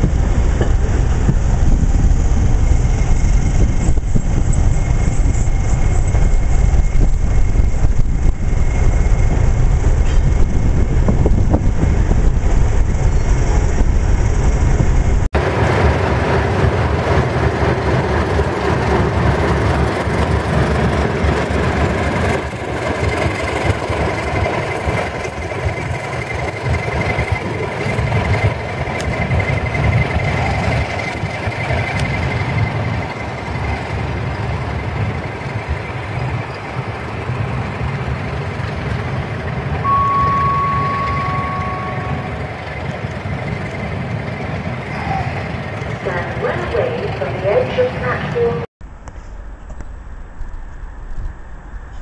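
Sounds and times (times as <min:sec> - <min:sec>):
diesel locomotive engine rumbling: 0:00.0 - 0:52.0
steady beep: 0:39.8 - 0:42.7
thin high whine: 0:39.8 - 0:43.4.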